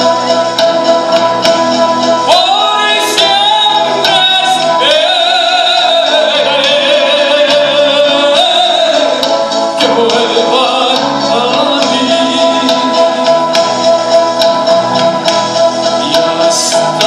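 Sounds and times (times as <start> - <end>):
band accompaniment: 0.0 - 17.0
man singing: 2.2 - 14.1, 15.9 - 17.0.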